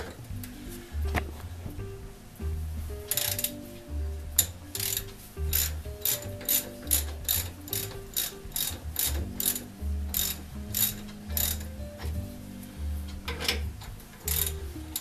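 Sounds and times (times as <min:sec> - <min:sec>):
ratchet wrench clicking: 0:03.1 - 0:03.6, 0:04.4 - 0:11.8, 0:14.2 - 0:15.0.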